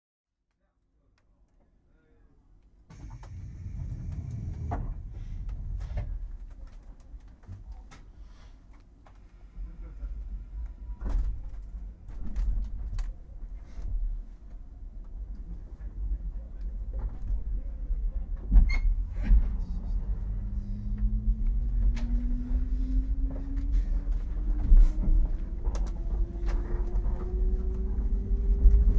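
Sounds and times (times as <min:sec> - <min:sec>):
train motor whine rising: 0:02.9 - 0:06.1
train low rumble: 0:02.9 - 0:28.9.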